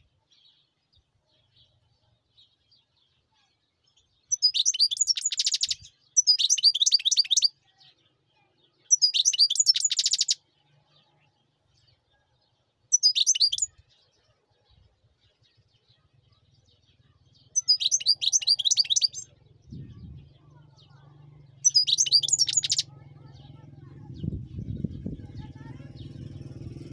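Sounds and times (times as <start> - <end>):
finch twittering song: 0.0 - 26.9.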